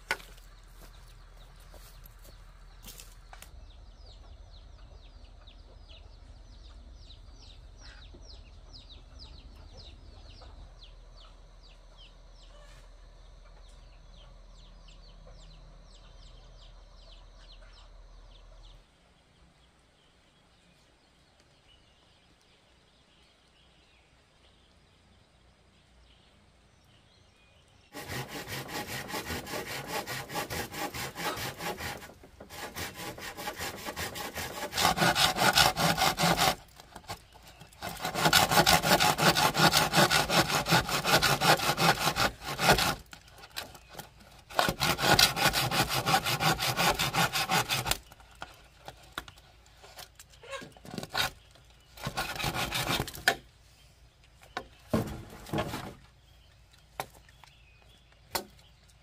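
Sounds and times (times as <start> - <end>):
rhythmic rasping strokes: 28.0 - 36.7.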